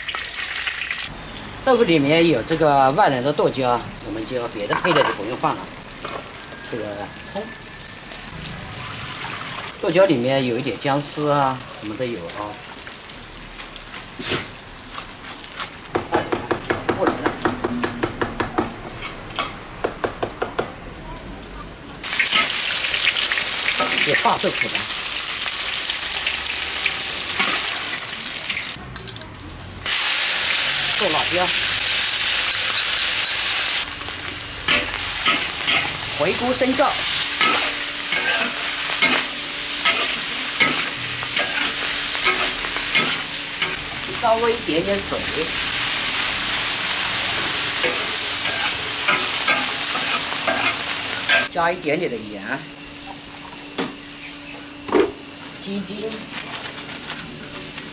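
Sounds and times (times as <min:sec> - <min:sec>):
tofu sizzling in hot oil: 0:00.0 - 0:01.6, 0:22.0 - 0:28.8, 0:29.8 - 0:53.4
metal spatula scraping wok: 0:18.8 - 0:19.6, 0:34.7 - 0:44.2, 0:47.1 - 0:51.5.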